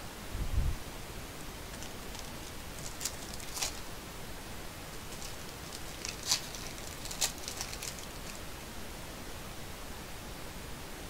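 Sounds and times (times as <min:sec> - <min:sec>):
steady hiss: 0:00.0 - 0:11.0
plastic wrapper crinkling: 0:01.6 - 0:04.0, 0:04.9 - 0:08.6.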